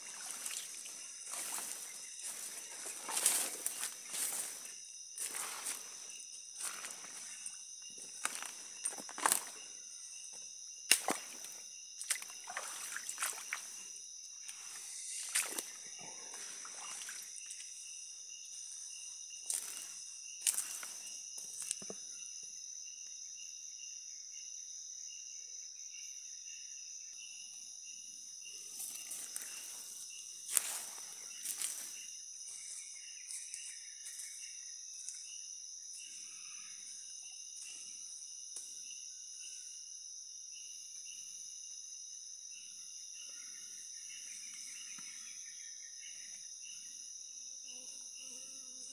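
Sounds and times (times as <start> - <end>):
footsteps on muddy trail: 0.0 - 9.7, 10.9 - 13.8, 14.4 - 17.8, 19.4 - 21.8, 28.8 - 32.8
high-pitched insect drone: 0.0 - 41.6, 42.5 - 48.9.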